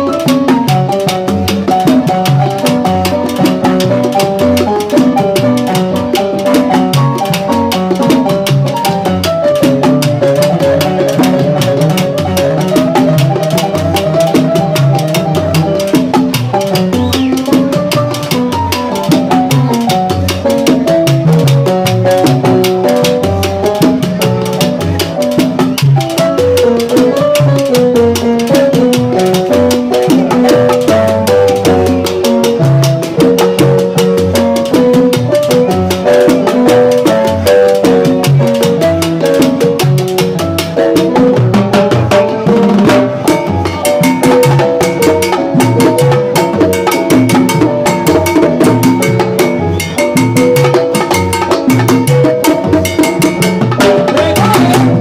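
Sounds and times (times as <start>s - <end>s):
congas struck by hand: 0.0s - 55.0s
salsa band playing: 0.0s - 55.0s.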